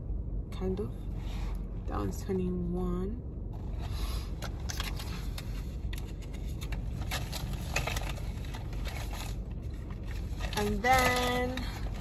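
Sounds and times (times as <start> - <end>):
steady low rumble: 0.0 - 12.0
plastic packaging clicks and rustles: 4.4 - 12.0.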